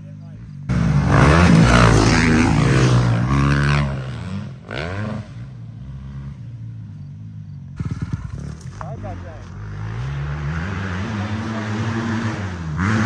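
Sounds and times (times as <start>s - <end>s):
dirt bike engine revving: 0.4s - 13.0s.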